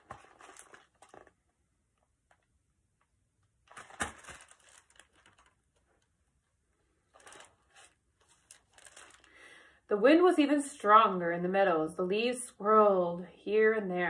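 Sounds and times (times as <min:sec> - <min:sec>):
book pages turning: 0:00.0 - 0:01.5, 0:03.7 - 0:05.9, 0:07.2 - 0:09.3.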